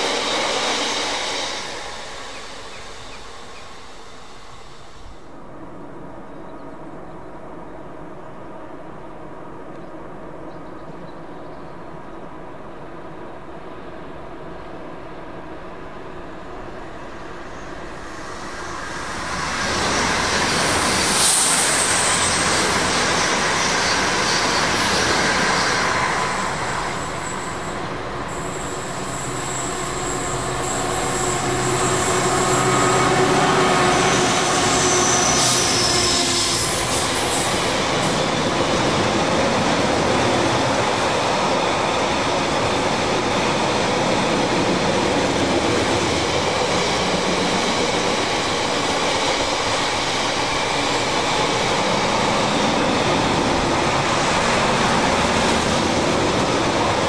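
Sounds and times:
freight train passing: 0.0s - 57.0s
high wheel squeals: 17.5s - 38.4s.

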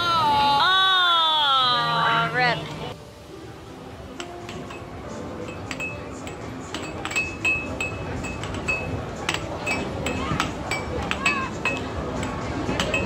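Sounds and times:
air hockey puck clacking: 4.2s - 4.9s, 5.5s - 13.0s.

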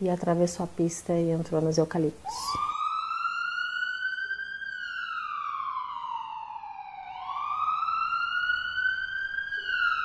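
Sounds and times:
emergency siren wailing: 2.3s - 10.0s.

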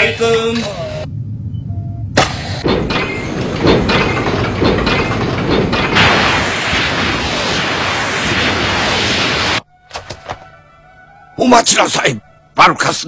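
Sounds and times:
rhythmic mechanical clatter: 2.6s - 6.8s
steady rushing hiss: 5.8s - 9.6s.

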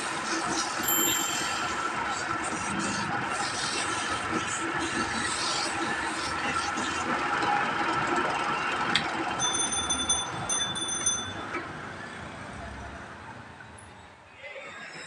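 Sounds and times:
high thin beeps: 0.9s - 2.0s.

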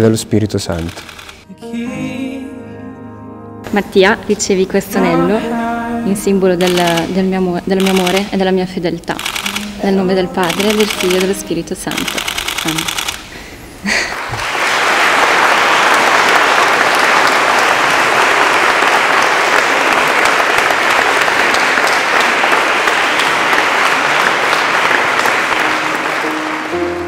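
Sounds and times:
crowd applauding: 7.8s - 8.2s, 10.4s - 11.3s, 13.8s - 27.0s.

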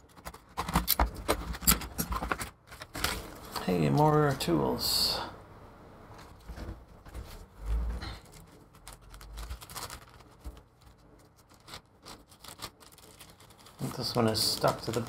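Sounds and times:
adhesive strips crackling and peeling: 8.2s - 15.0s.

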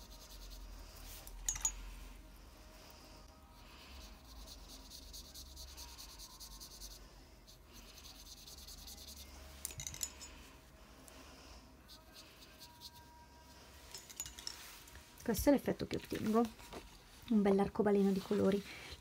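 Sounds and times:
paintbrush rubbing on paper: 0.0s - 1.3s, 3.6s - 9.6s, 11.8s - 13.5s
brush clicking against glass jar: 1.3s - 1.8s, 9.6s - 10.4s.

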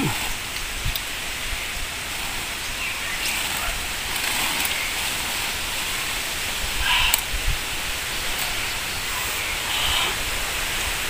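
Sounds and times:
plant stems rustling: 0.0s - 6.8s
steady outdoor hiss: 0.0s - 11.0s.

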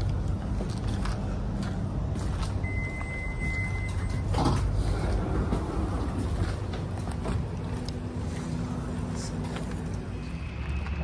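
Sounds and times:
electric train rumbling: 0.0s - 11.0s
high beep: 2.6s - 4.3s.

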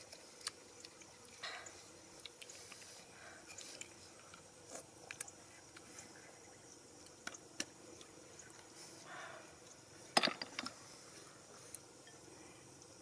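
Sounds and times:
snail shells clicking and clacking: 0.0s - 5.9s.

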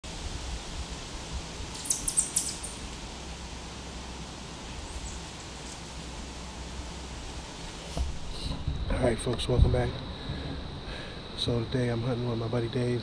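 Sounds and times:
background hiss: 0.0s - 13.0s
bird chirping: 1.7s - 3.0s, 4.6s - 6.0s.

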